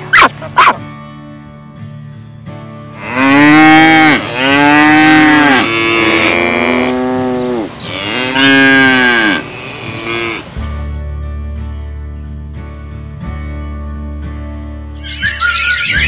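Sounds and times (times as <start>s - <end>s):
animal calling: 0.0s - 0.8s, 15.0s - 16.0s.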